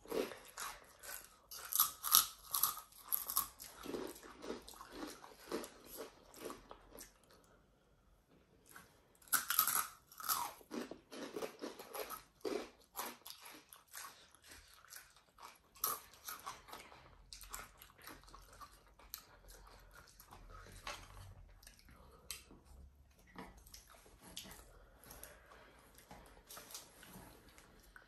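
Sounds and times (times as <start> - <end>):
chips crunching while chewed: 0.0 - 7.4, 8.7 - 21.8.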